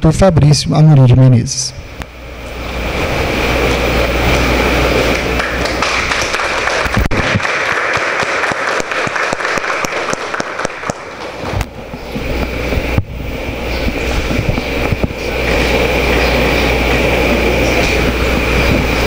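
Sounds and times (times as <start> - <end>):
audience applauding: 4.8 - 11.7.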